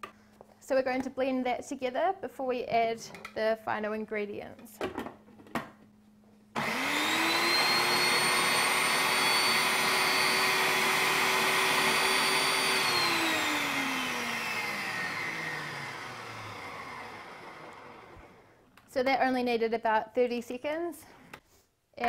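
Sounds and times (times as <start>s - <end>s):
food processor motor whine: 6.6s - 18.6s.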